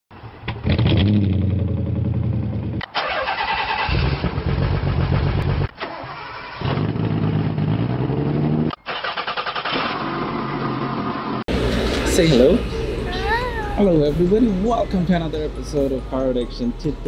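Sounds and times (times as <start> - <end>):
car engines starting and idling: 0.2 - 17.0.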